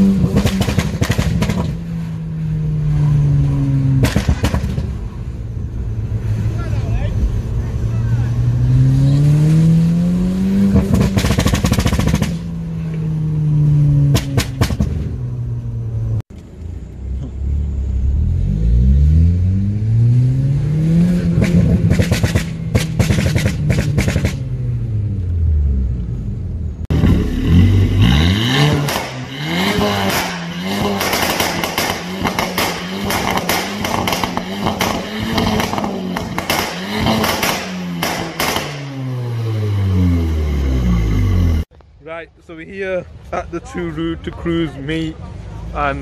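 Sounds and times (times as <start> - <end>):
car engine revving: 0.0 - 16.2, 17.0 - 41.7
exhaust crackling pops: 0.2 - 1.9, 4.0 - 5.0, 10.8 - 13.0, 14.0 - 15.2, 21.3 - 24.5, 28.7 - 39.1.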